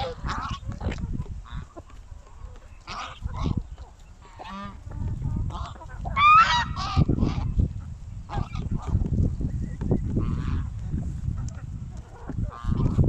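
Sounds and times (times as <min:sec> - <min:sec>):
geese honking: 0:00.0 - 0:07.7, 0:08.3 - 0:09.0, 0:10.2 - 0:10.8, 0:12.0 - 0:13.0
steady low rumble: 0:00.0 - 0:13.0.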